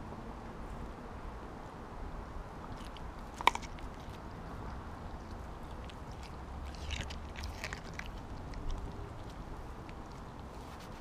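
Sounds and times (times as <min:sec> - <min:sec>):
low steady rumble: 0:00.0 - 0:11.0
dog chewing wet crunches: 0:02.6 - 0:11.0.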